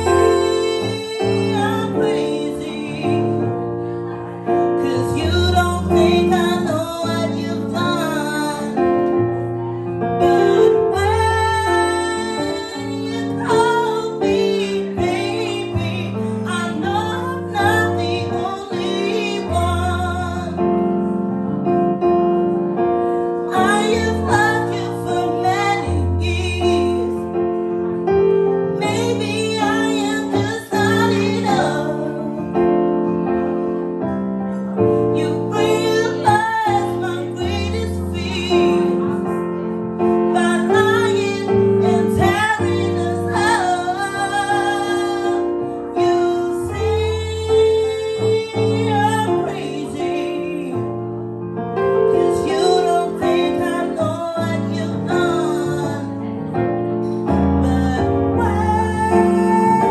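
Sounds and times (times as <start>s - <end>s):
woman singing: 0.0s - 21.0s, 23.4s - 27.6s, 28.6s - 33.2s, 34.8s - 50.9s, 51.9s - 56.6s, 57.2s - 59.9s
keyboard chords: 0.0s - 59.9s.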